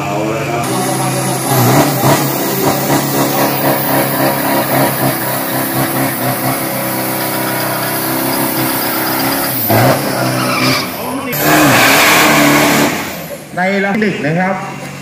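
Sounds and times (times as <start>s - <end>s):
truck engine at high revs: 0.0s - 15.0s.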